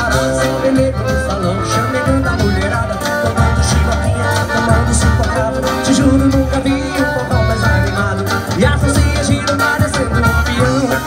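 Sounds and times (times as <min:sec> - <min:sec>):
accordion chords: 0:00.0 - 0:11.0
acoustic guitar: 0:00.0 - 0:11.0
low drum beat: 0:04.8 - 0:09.4
sharp percussion strikes: 0:05.8 - 0:07.6.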